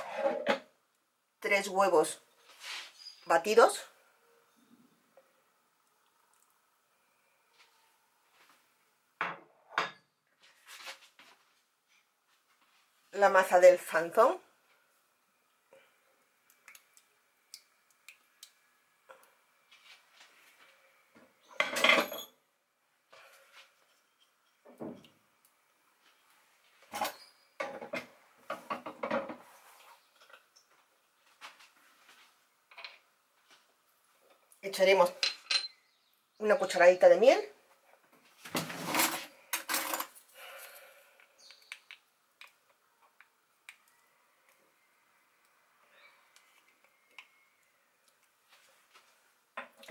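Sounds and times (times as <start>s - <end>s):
soft rustle: 2.4s - 3.2s, 10.4s - 13.2s
crockery clinking: 21.6s - 22.4s, 35.2s - 35.9s.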